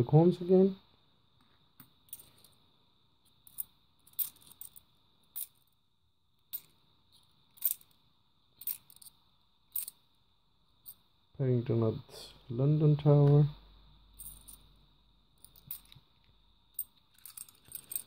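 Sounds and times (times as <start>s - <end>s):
coins clinking together: 2.1s - 2.6s, 3.4s - 5.7s, 7.5s - 8.0s, 8.6s - 9.1s, 9.7s - 10.0s, 14.2s - 14.6s, 15.4s - 16.0s, 16.7s - 18.0s.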